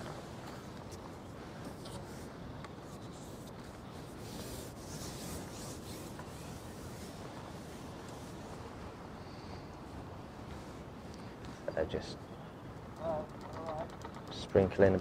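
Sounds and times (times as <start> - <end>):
faint rubbing and rustling: 0.0 - 12.0.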